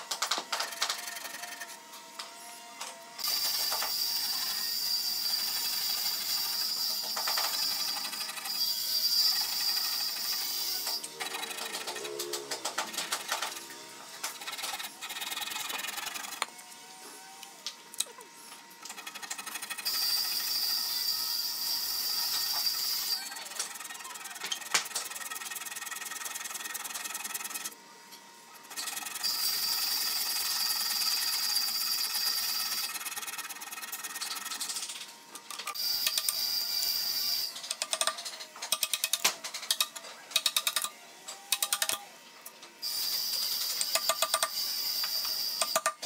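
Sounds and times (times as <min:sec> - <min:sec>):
hand saw rasping through wood: 0:14.3 - 0:16.5.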